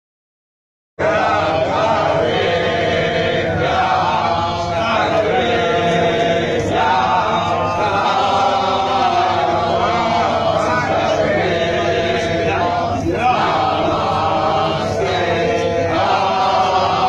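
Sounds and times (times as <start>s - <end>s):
group of voices chanting: 1.0s - 17.0s.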